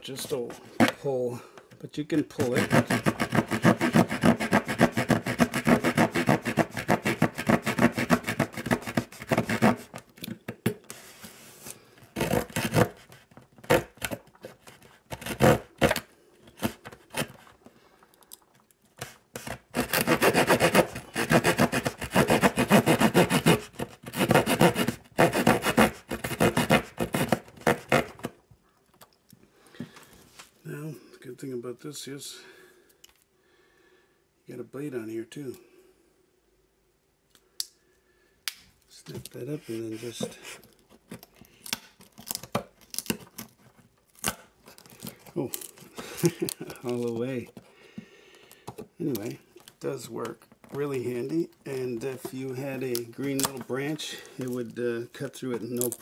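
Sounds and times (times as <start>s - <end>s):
saw cutting wood: 2.3s - 9.9s, 12.2s - 13.1s, 19.4s - 28.3s.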